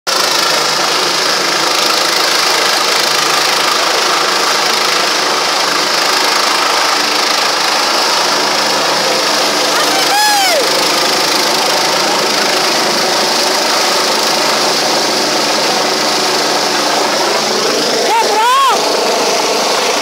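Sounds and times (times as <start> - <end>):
helicopter hovering: 0.1 - 20.0.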